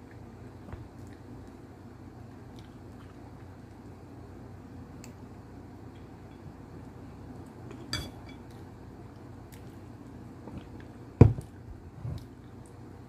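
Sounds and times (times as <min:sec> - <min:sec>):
tableware clink with short ring: 0:07.9 - 0:08.4.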